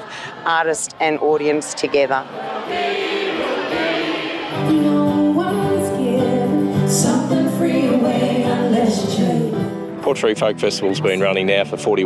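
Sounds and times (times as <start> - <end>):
voices singing long notes: 2.4 - 9.8
live folk music: 3.8 - 12.0.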